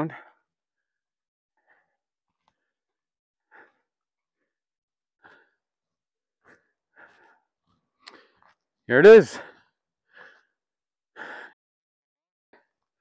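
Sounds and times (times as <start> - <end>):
faint breaths of hiker: 0.1 - 11.6.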